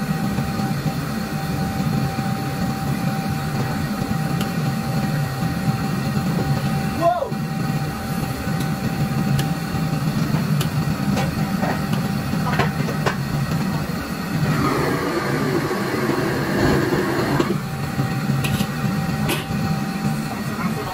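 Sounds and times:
gas stove roaring: 0.0s - 20.9s
ladle scraping wok: 14.4s - 19.7s.

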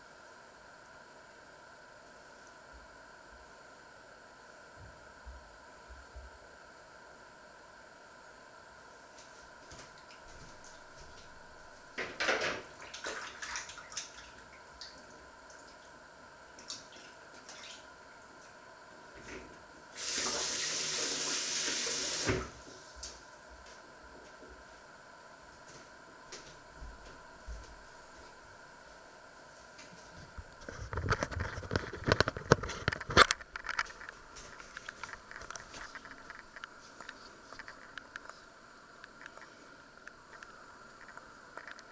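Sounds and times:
splashes and knocks in sink: 12.0s - 15.0s.

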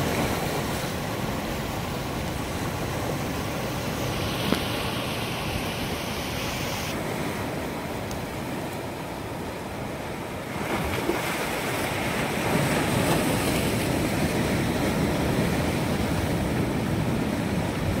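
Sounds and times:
surf breaking over rocks: 0.0s - 8.5s.

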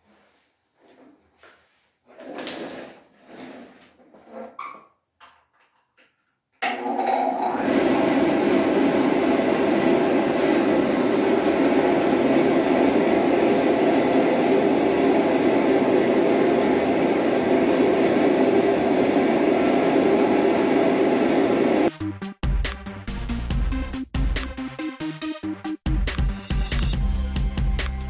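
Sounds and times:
blower dryer running: 6.6s - 21.9s.

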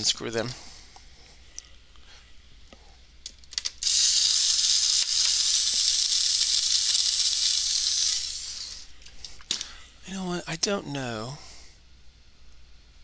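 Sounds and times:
screwdriver bit clicking: 3.5s - 8.5s
electric screwdriver whirring: 3.8s - 8.8s.

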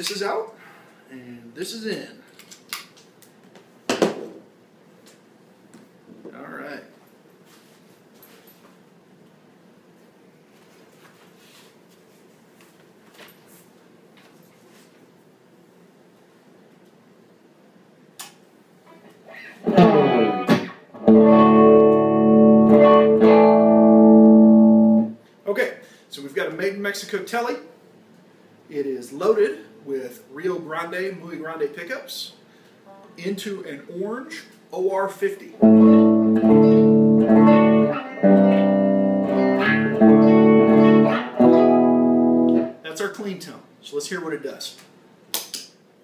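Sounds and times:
electric guitar chord ringing: 19.6s - 25.2s, 35.6s - 42.8s
electric guitar strumming: 19.6s - 25.2s, 35.6s - 42.8s.

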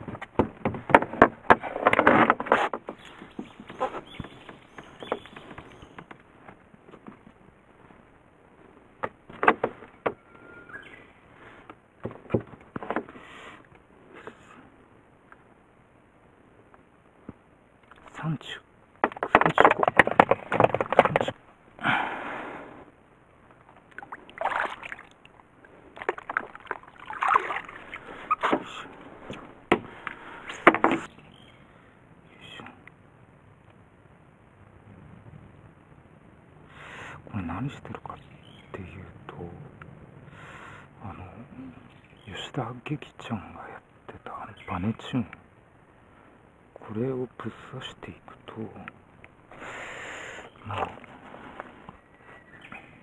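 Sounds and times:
faint whistle-like tone: 10.2s - 11.0s
water splashing and sloshing: 23.7s - 29.4s
sharp knocks: 29.7s - 29.9s.

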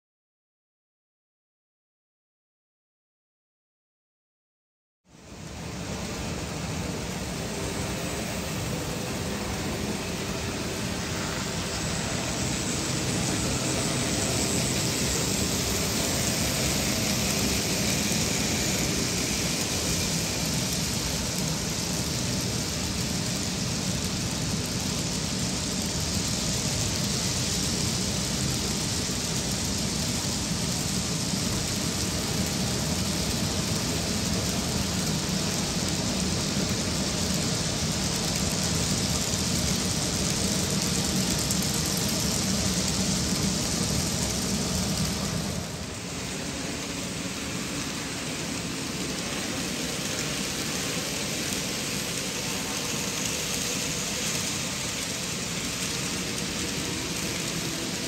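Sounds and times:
model train wheels rolling: 5.2s - 58.0s.

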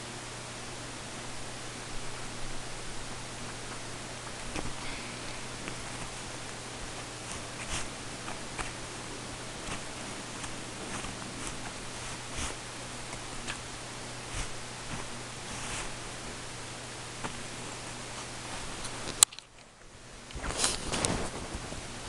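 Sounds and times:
recording hiss and hum: 0.0s - 22.0s
kitten claws pawing fabric: 3.7s - 16.2s, 17.2s - 19.3s.

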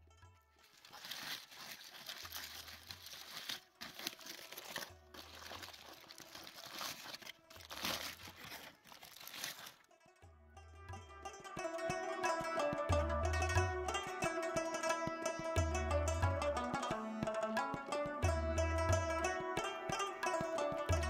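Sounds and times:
aluminium foil crackling: 0.5s - 10.0s.

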